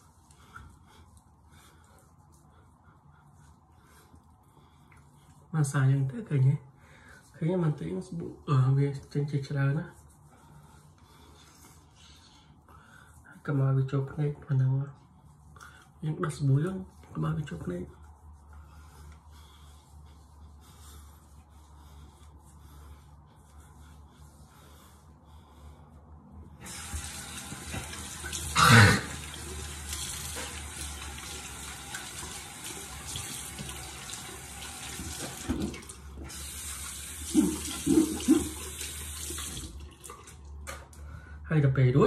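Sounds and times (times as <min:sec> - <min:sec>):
tap water running into basin: 0:26.6 - 0:40.8.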